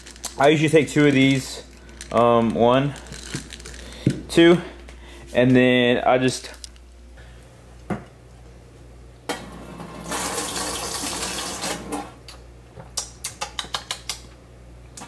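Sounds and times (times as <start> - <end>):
faucet water running: 9.8 - 12.1.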